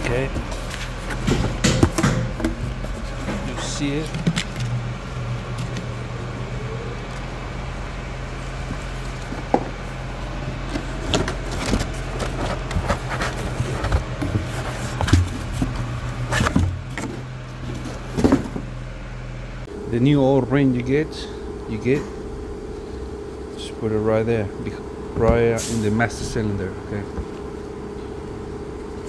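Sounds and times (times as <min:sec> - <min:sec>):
cardboard and paper rustling: 0:00.0 - 0:06.0, 0:08.6 - 0:18.7
steady low hum: 0:00.0 - 0:29.0.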